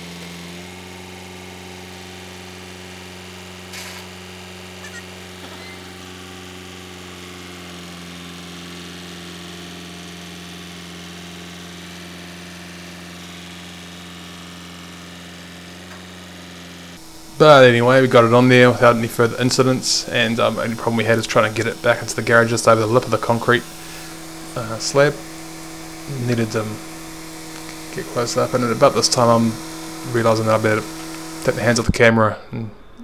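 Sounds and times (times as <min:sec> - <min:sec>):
low hum: 0:16.9 - 0:33.0.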